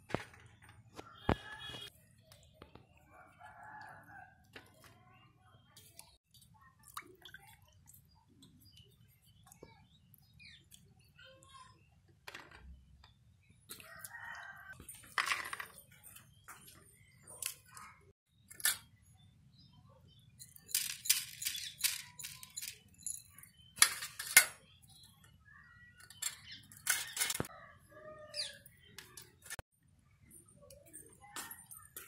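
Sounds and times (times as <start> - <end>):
seeds rattling on steel plate: 20.6 - 23.2.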